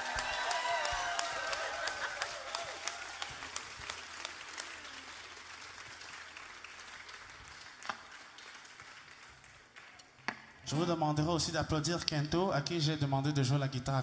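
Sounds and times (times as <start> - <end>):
audience applauding: 0.0 - 10.2.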